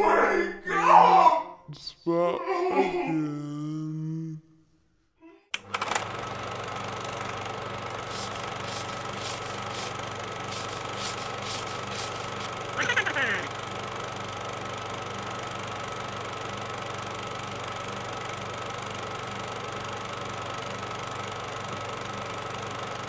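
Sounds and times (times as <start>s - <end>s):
film projector whirring: 5.6s - 23.0s.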